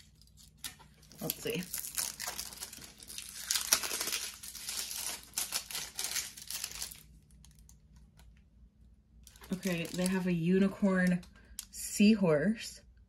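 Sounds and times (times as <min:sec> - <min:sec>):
packaging crinkling and tearing: 0:00.0 - 0:08.4, 0:09.2 - 0:10.4.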